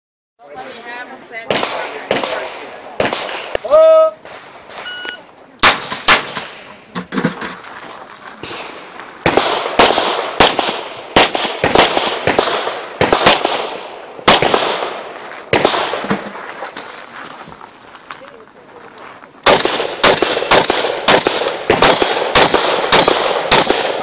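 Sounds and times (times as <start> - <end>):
gunshots echoing: 1.4 - 5.0, 5.6 - 7.5, 8.4 - 16.3, 19.4 - 24.0.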